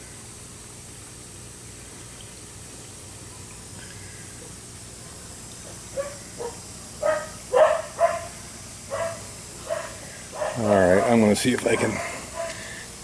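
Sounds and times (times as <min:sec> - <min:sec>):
dog barking: 0:06.0 - 0:12.6.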